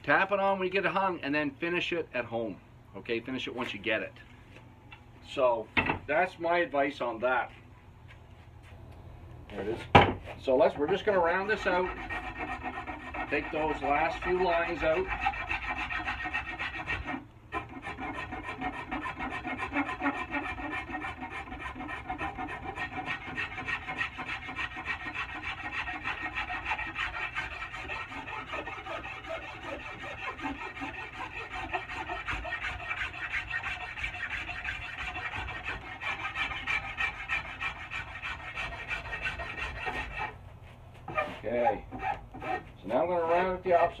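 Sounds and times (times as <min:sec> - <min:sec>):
hand file rasping on wood: 0:10.7 - 0:40.4, 0:41.0 - 0:44.0.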